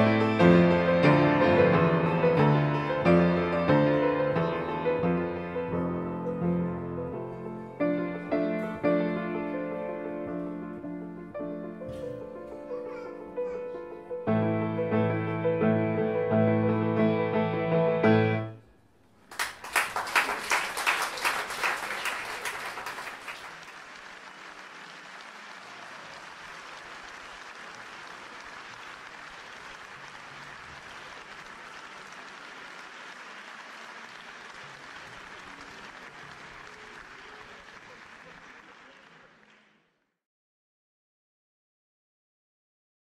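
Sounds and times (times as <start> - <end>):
audience applauding: 19.2 - 40.0.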